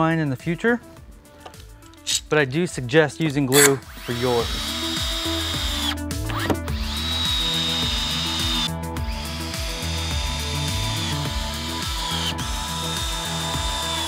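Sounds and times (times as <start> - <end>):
background music: 0.0 - 14.0
cordless drill whining: 3.6 - 14.0.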